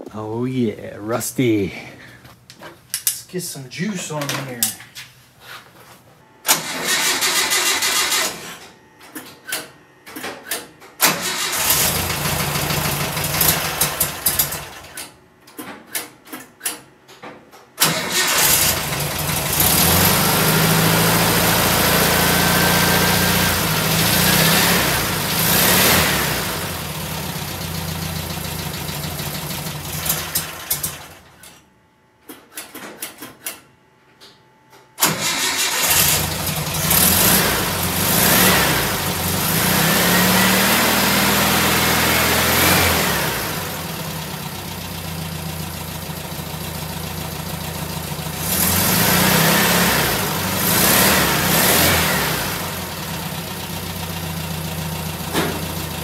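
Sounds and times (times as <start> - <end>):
engine cranking: 6.5 - 8.6, 11.0 - 14.8, 17.8 - 19.8, 35.0 - 37.4
engine running: 11.0 - 14.8, 17.8 - 31.2, 35.0 - 56.0.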